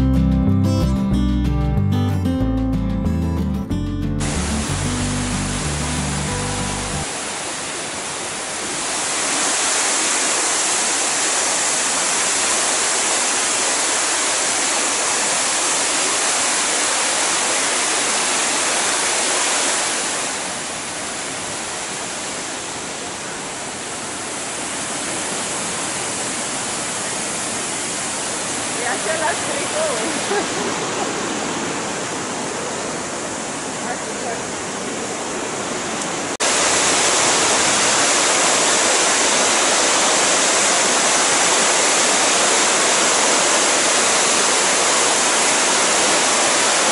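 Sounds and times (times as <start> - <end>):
short music: 0.0 - 7.1
waterfall rushing roar: 4.2 - 46.9.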